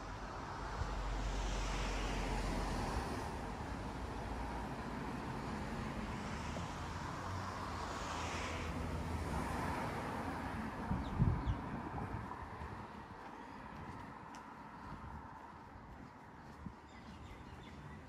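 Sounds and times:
cars passing: 0.0 - 18.0
low traffic rumble: 0.0 - 18.0.

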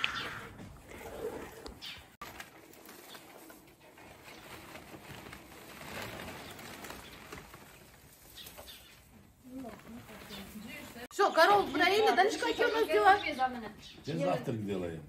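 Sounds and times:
hay and plastic sack rustling: 2.2 - 11.1.

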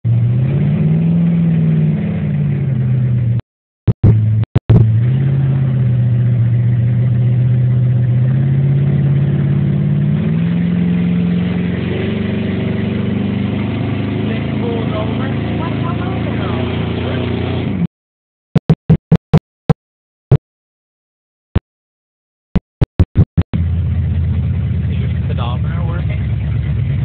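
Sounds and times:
car engine revving: 0.1 - 17.9.

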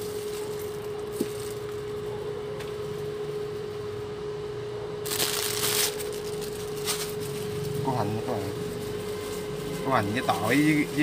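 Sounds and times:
cooling fan humming with steady tone: 0.0 - 11.0.

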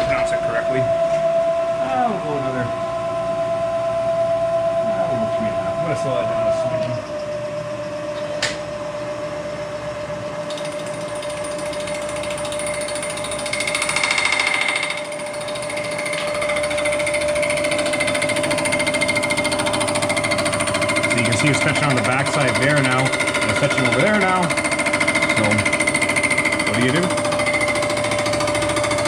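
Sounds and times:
milling machine whine: 0.0 - 29.0
cutter rattling on iron: 10.5 - 29.0.

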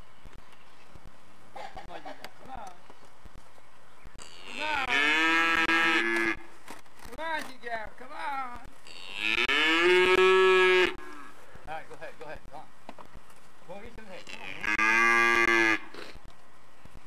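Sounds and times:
cattle mooing: 4.2 - 6.4, 8.9 - 11.4, 14.2 - 15.9.

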